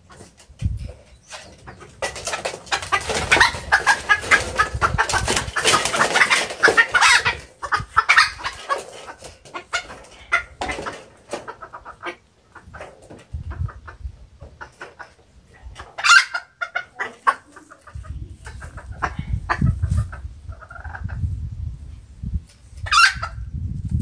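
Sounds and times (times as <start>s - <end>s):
chickens clucking: 0.0s - 23.6s.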